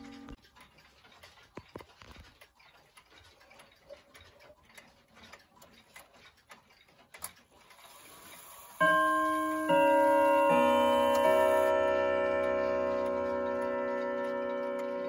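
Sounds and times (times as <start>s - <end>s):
wall clock ticking: 0.0s - 15.0s
clock chime notes: 8.8s - 15.0s.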